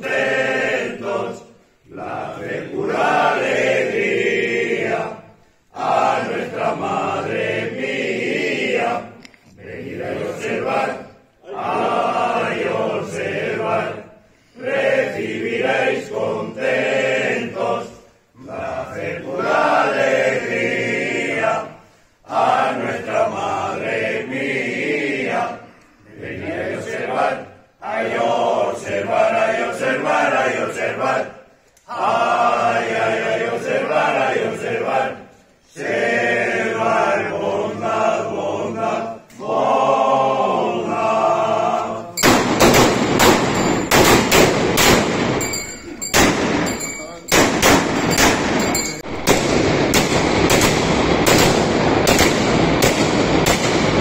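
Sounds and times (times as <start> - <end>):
group singing a hymn: 0.0 - 46.7, 47.3 - 54.0
shotguns firing: 42.2 - 45.4, 46.1 - 54.0.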